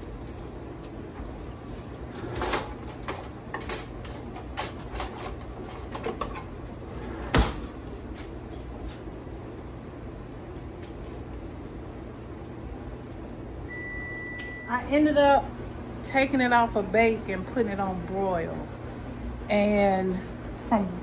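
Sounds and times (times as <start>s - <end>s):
low steady hum: 0.0s - 21.0s
cutlery clattering in drawer: 2.2s - 7.8s.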